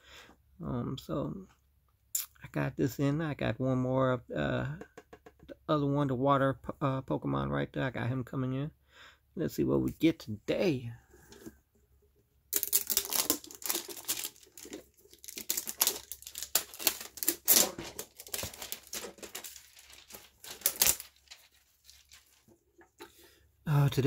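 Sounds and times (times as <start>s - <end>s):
plastic shrink-wrap crinkling: 12.6s - 22.9s.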